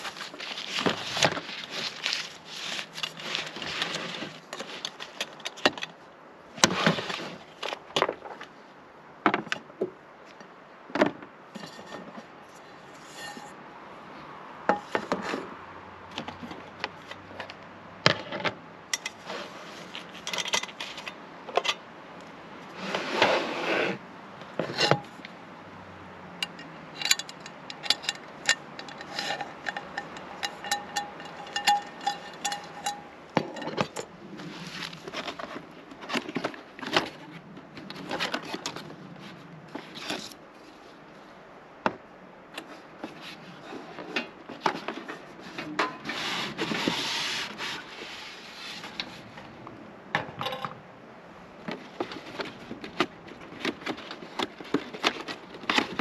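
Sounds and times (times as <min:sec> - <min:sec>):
cookware scraping: 0:12.9 - 0:13.6, 0:26.4 - 0:35.5
cookware clinking and knocking: 0:28.8 - 0:33.8, 0:50.2 - 0:50.8.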